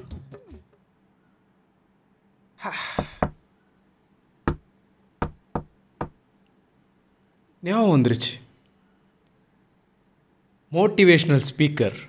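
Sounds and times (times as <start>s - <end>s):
knocking on a door: 3.0s - 3.4s, 5.2s - 6.2s.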